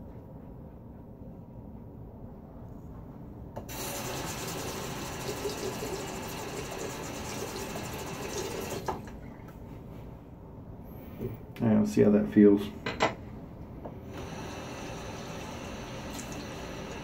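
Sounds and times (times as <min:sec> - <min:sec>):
faucet water running into sink: 0:03.7 - 0:09.2, 0:14.1 - 0:17.0.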